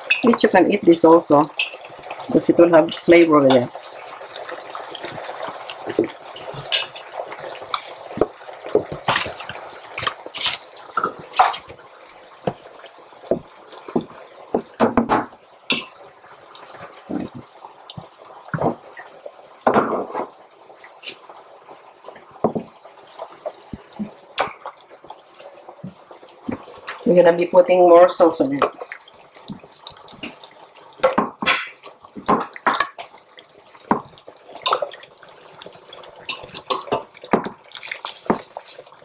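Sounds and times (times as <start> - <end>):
sauce being stirred: 28.6 - 39.0.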